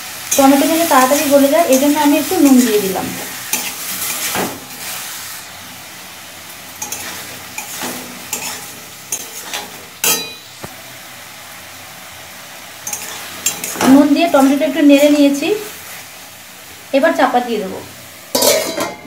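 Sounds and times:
tomatoes sizzling in oil: 0.0 - 19.0
metal spatula scraping pan: 0.3 - 2.9, 3.5 - 5.0, 6.8 - 10.4, 12.8 - 15.4
spatula clinking on pan: 6.8 - 10.5, 12.8 - 13.9, 18.4 - 19.0.

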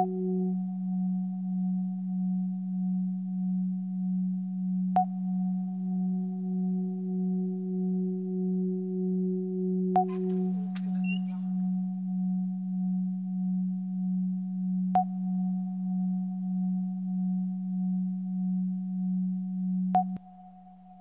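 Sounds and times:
faint high chirps: 10.0 - 11.7
low pulsing electronic tone: 10.0 - 11.9.

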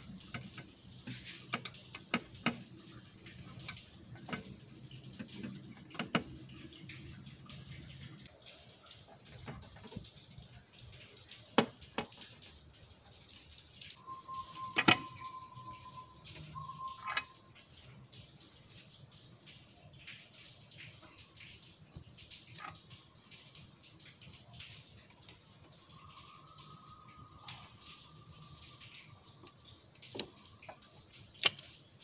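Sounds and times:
faint steady tone: 13.9 - 17.8.

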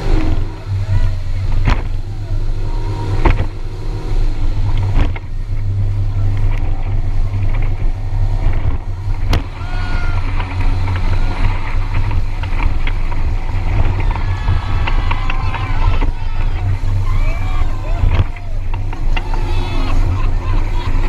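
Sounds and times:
motorboat engine running: 0.0 - 21.0
sharp knocks: 8.6 - 9.6.

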